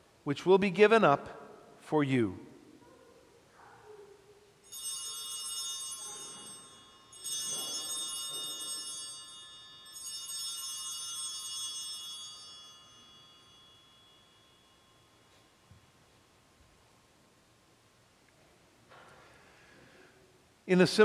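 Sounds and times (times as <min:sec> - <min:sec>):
altar bells jangling: 0:04.6 - 0:15.7.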